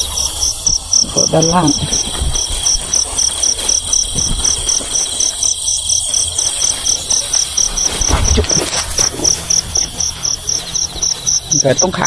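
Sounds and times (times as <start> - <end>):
continuous high trill: 0.0 - 12.0
crickets chirping: 0.0 - 12.0
low bump or rustle: 6.1 - 11.3.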